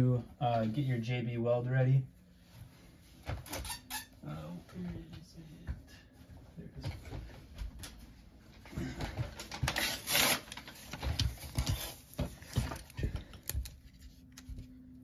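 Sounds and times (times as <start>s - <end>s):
paper rustling: 9.4s - 14.8s.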